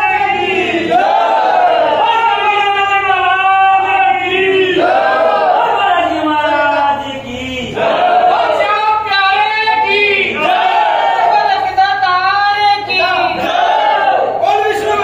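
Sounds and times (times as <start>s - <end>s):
men chanting in unison: 3.1s - 11.7s.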